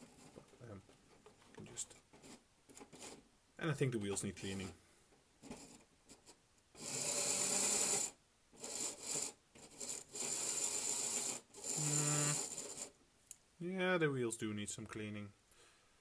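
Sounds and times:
model locomotive motor whirring: 6.8 - 12.9.

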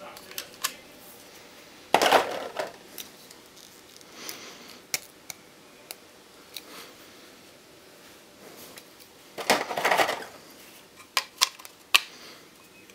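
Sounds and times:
plastic parts clicking: 11.0 - 12.1.

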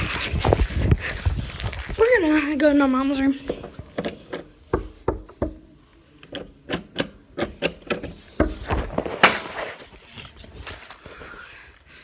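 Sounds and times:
footsteps: 0.0 - 2.5, 8.4 - 11.8.

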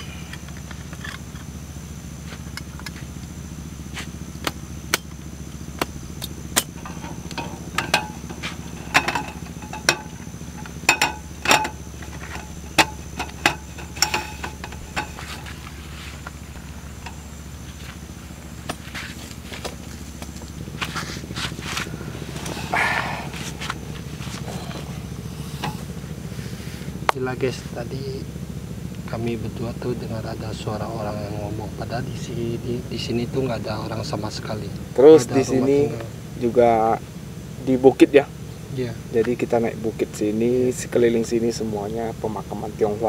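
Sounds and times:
low hum: 0.0 - 42.9
metal table clicks and clanks: 6.6 - 15.5.

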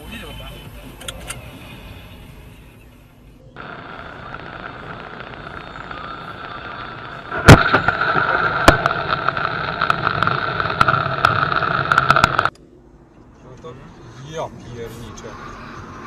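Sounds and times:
car on wet road: 3.6 - 12.5
sharp clicks and crackles: 3.6 - 12.7
loud sharp bang: 7.3 - 11.4.

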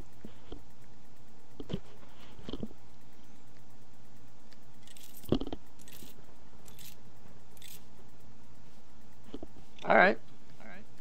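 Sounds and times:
steady electrical hum: 0.0 - 11.0
handling noises at a desk: 4.8 - 7.0.

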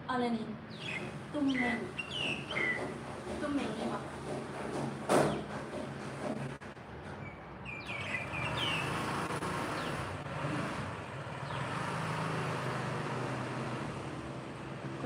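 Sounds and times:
small bird chirping: 0.7 - 2.9, 7.2 - 10.0
vehicle engine hum: 5.5 - 15.0.

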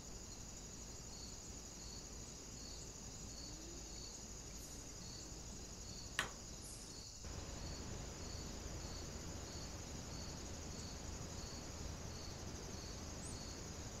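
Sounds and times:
background hiss: 0.0 - 14.0
constant high insect trill: 0.0 - 14.0
crickets chirping: 0.0 - 14.0
sharp click: 6.2 - 6.4.

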